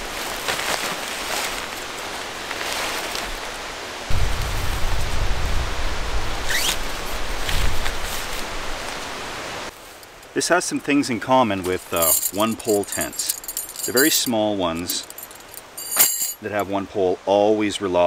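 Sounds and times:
tent fabric rustling: 0:00.0 - 0:03.9, 0:06.5 - 0:09.0, 0:11.6 - 0:16.3
tall grass rustling: 0:00.0 - 0:16.2
steady outdoor hiss: 0:00.0 - 0:18.0.

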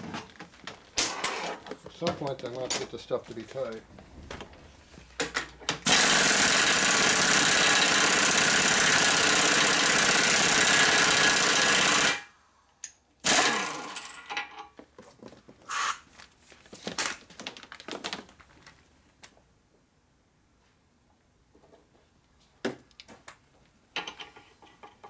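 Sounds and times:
clatter of tools being handled: 0:00.0 - 0:05.8, 0:24.0 - 0:25.0
impact wrench running: 0:05.7 - 0:12.3, 0:13.2 - 0:14.3.

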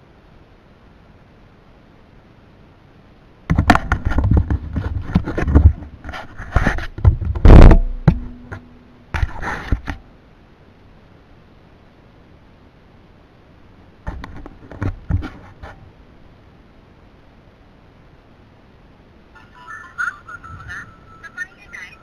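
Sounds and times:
rubbing scraping and knocking: 0:03.5 - 0:10.0, 0:14.1 - 0:15.8
short steady hum: 0:07.4 - 0:09.8.

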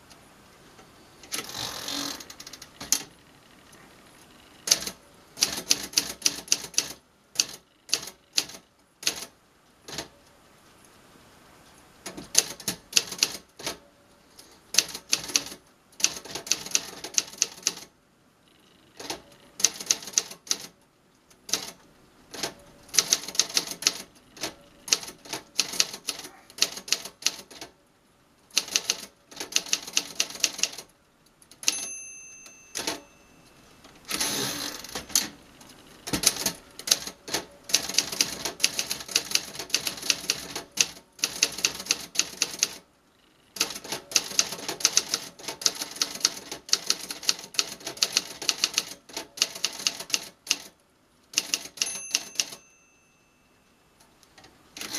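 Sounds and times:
typewriter keys clacking: 0:04.7 - 0:09.3, 0:12.1 - 0:13.8, 0:14.8 - 0:17.9, 0:19.0 - 0:20.7, 0:22.4 - 0:27.7, 0:28.6 - 0:30.9, 0:31.6 - 0:33.1, 0:36.1 - 0:42.8, 0:43.6 - 0:50.7, 0:51.3 - 0:52.6
typewriter margin bell ringing: 0:31.6 - 0:33.6, 0:51.4 - 0:53.7
typewriter carriage ratcheting return: 0:51.3 - 0:52.6.

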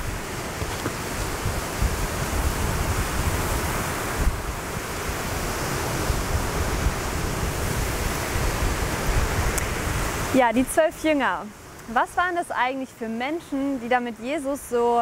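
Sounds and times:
wind blowing across microphone: 0:00.0 - 0:15.0.

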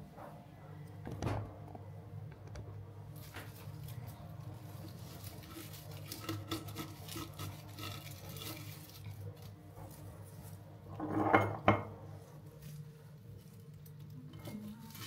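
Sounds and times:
artificial stems rustling: 0:03.1 - 0:10.9, 0:12.1 - 0:15.0.

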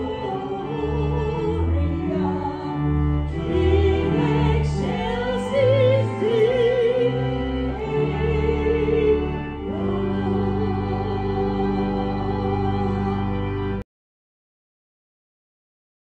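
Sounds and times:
woman singing a hymn: 0:00.0 - 0:13.4
sustained accompanying chords: 0:00.0 - 0:13.8.

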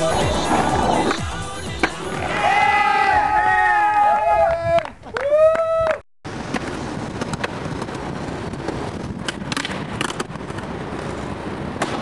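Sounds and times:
skateboard scraping stone ledge: 0:00.0 - 0:01.2
skateboard wheels rolling on concrete: 0:00.0 - 0:12.0
skateboard clacks: 0:06.4 - 0:12.0.

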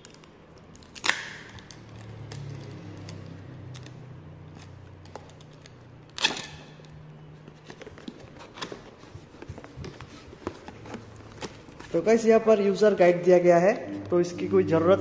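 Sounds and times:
sticker seal pulled free: 0:05.1 - 0:06.9.

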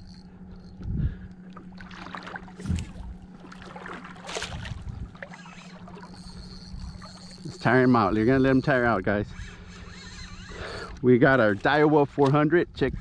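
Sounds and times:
fish splashing in water: 0:01.6 - 0:07.5.

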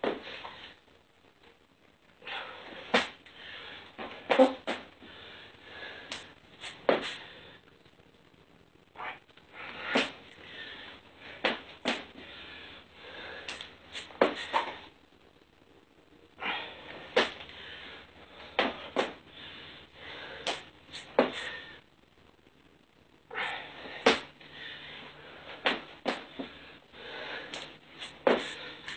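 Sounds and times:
person breathing hard: 0:02.2 - 0:07.7, 0:09.0 - 0:14.9, 0:16.3 - 0:21.9, 0:23.3 - 0:28.9.

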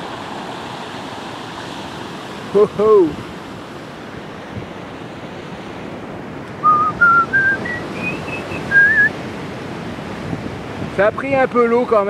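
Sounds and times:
surf: 0:00.0 - 0:12.0
wind: 0:00.0 - 0:12.0
person whistling a tune: 0:06.6 - 0:09.1.

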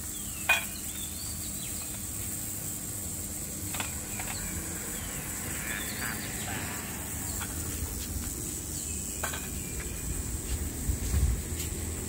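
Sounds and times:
steady high hiss: 0:00.0 - 0:12.0
low rumble: 0:03.8 - 0:12.0.

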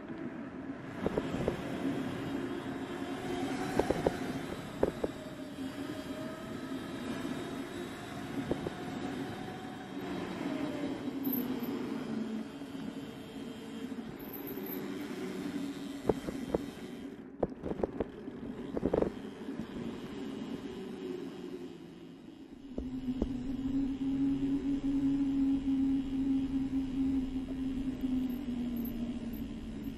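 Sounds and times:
low rumble: 0:22.5 - 0:29.9.

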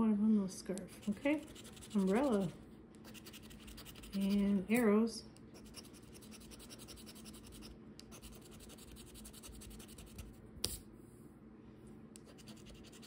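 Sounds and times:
lottery ticket being scratched: 0:00.9 - 0:04.6, 0:05.6 - 0:10.4.

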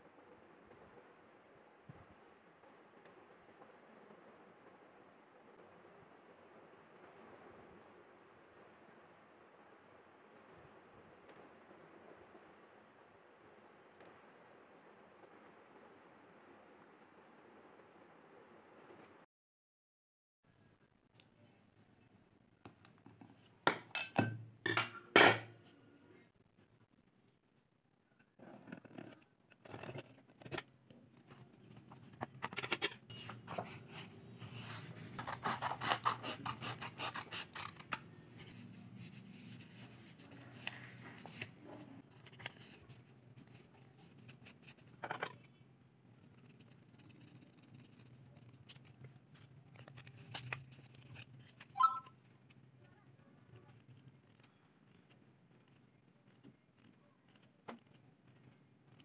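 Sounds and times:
scissors cutting cardboard: 0:28.4 - 0:45.5
short squeak: 0:51.7 - 0:52.2.

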